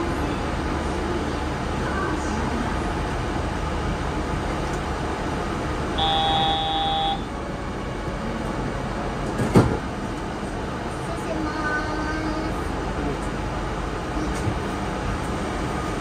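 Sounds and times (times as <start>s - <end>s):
train running: 0.0s - 16.0s
electronic tone: 6.0s - 7.3s.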